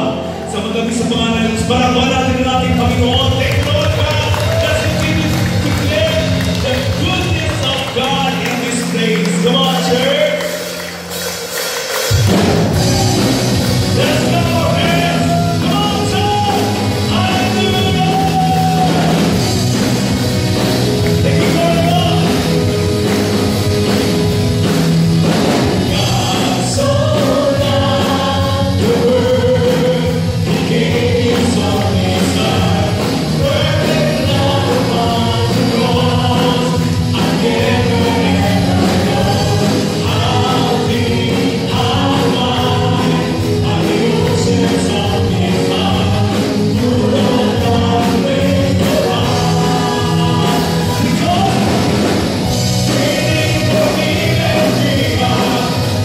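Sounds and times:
drums: 0.0s - 56.0s
guitar: 0.0s - 56.0s
voices singing into microphones: 12.2s - 24.1s, 25.5s - 56.0s.

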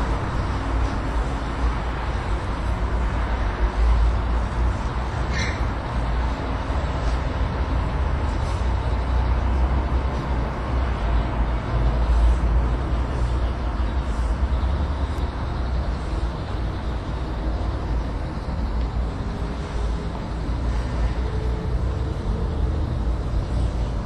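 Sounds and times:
traffic rumble: 0.0s - 24.0s.

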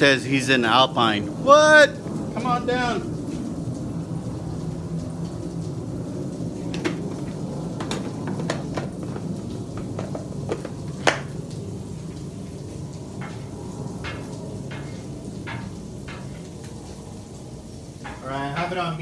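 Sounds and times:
butter sizzling on a griddle: 6.5s - 19.0s.

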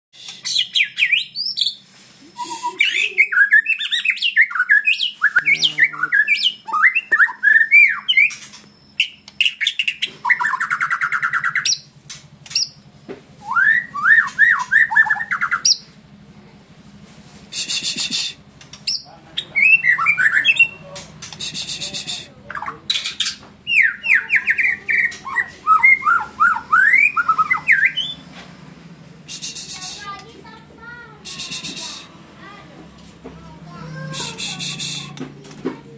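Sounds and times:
songbird whistling with rasping notes: 0.2s - 1.8s, 2.4s - 11.9s, 13.4s - 15.9s, 17.5s - 22.3s, 23.2s - 28.2s, 31.2s - 32.1s.

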